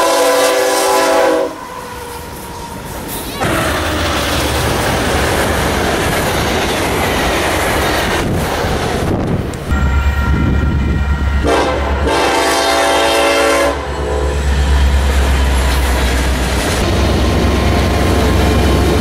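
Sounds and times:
locomotive air horn: 0.0 - 2.7, 11.4 - 14.6
passing train: 0.0 - 19.0.

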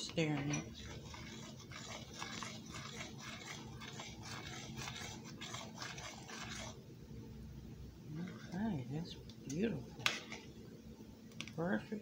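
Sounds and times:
spoon scraping a steel saucepan: 0.0 - 6.8.

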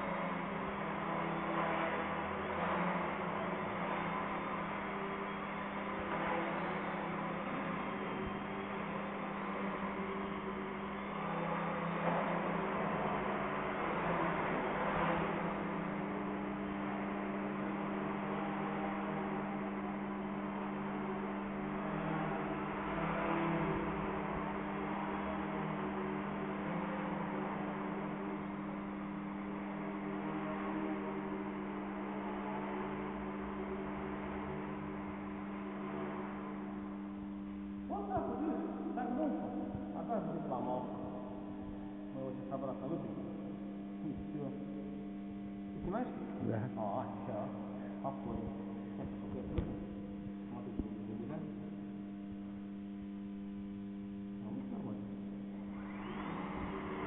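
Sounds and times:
electric motor and propeller buzz: 0.0 - 39.2, 54.6 - 57.0
electrical hum: 0.0 - 57.0.

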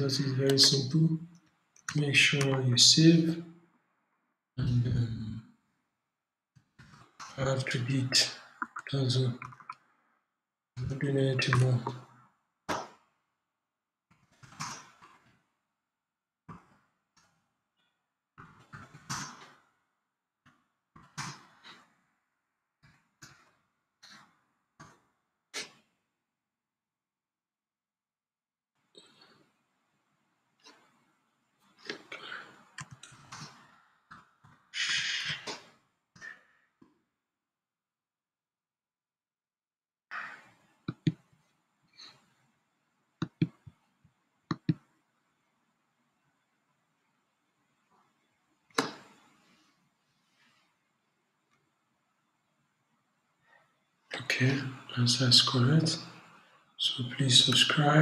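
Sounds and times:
brief hiss: 34.8 - 35.6.

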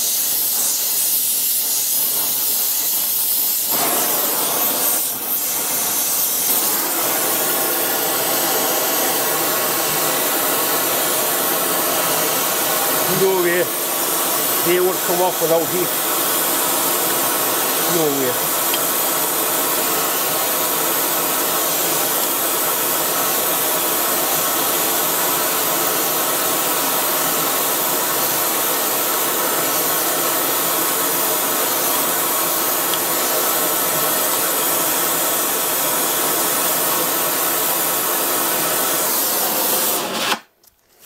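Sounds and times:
gas torch flame hissing: 0.0 - 40.5.

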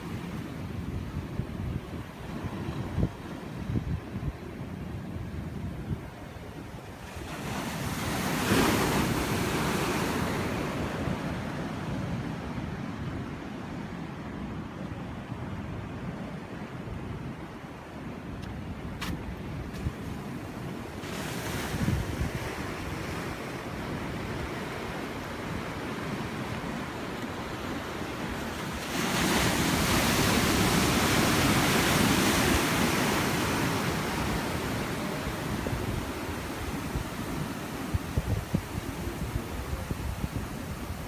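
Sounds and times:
wind buffeting microphone: 0.1 - 14.0, 15.1 - 41.0
ocean surf breaking: 6.9 - 14.2, 19.9 - 41.0.

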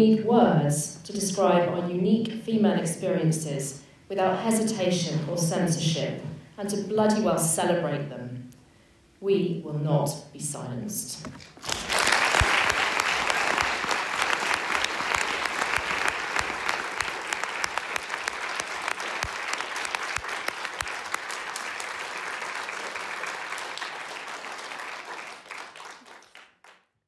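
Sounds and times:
audience applauding: 11.5 - 26.8.

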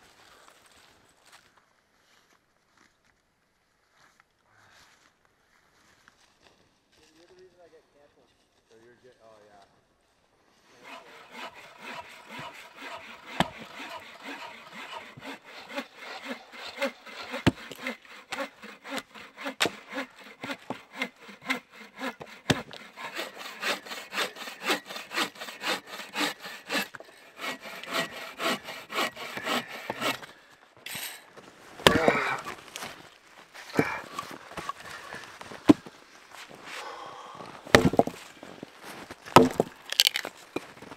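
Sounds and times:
bow saw cutting log: 10.7 - 31.2, 31.8 - 33.0, 33.7 - 36.9, 37.7 - 38.3, 39.0 - 40.4
axe chopping wood: 10.9 - 30.2, 31.8 - 32.9, 37.7 - 38.3, 39.3 - 40.4.

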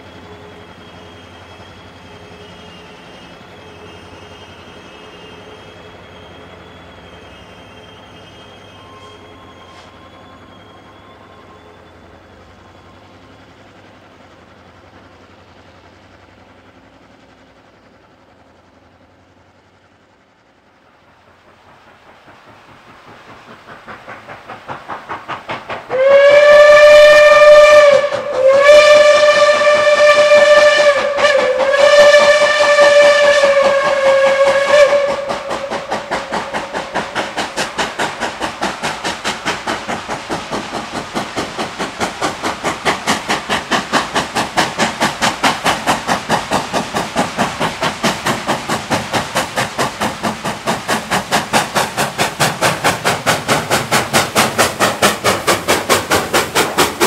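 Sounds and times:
steam whistle blasts: 0.0 - 13.0, 25.9 - 37.7
steam locomotive exhaust beats: 0.0 - 57.0.

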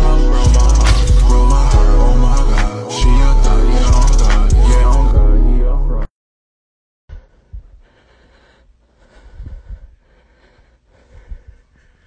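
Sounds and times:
soft low thumps: 7.1 - 8.0.

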